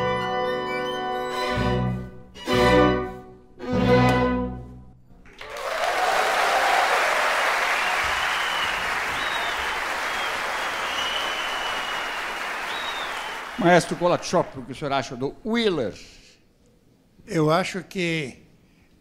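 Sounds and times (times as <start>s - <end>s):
audience applause: 5.3s - 14.8s
audience cheering: 5.4s - 14.8s.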